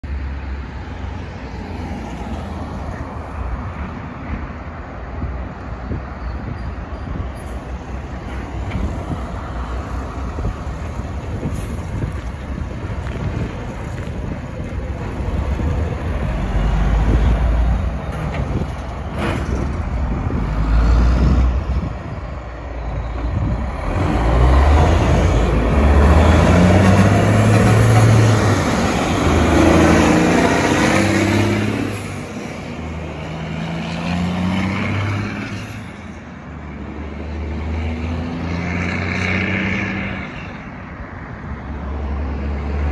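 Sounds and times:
road traffic passing: 0.0s - 42.9s
truck engine shifting gears: 8.2s - 35.6s.

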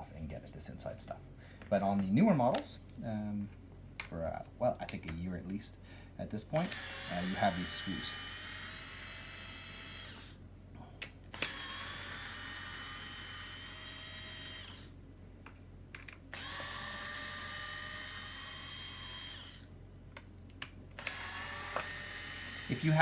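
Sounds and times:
electric screwdriver whining: 6.6s - 10.4s, 11.3s - 14.9s, 16.3s - 19.7s, 21.0s - 23.0s.

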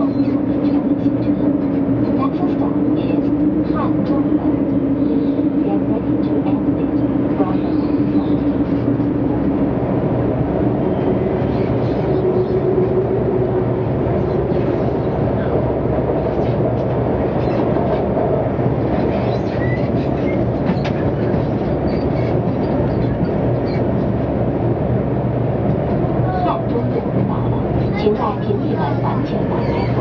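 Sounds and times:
train wheels rumbling: 0.0s - 30.0s.

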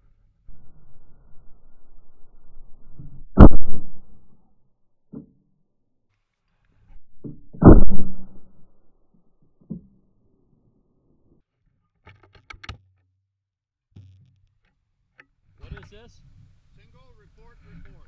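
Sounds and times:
shotgun shot: 3.4s - 4.0s.

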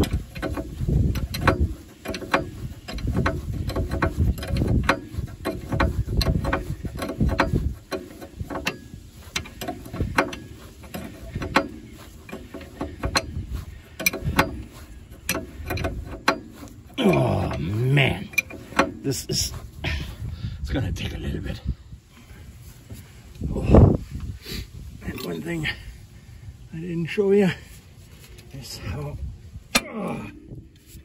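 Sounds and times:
metal ratchet clicks and knocks: 0.0s - 19.7s
low rumbling handling noise: 0.0s - 31.0s.

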